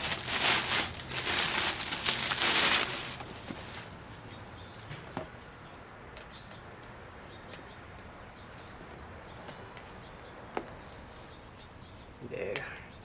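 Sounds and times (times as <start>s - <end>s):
plastic bag crinkling: 0.0s - 4.0s.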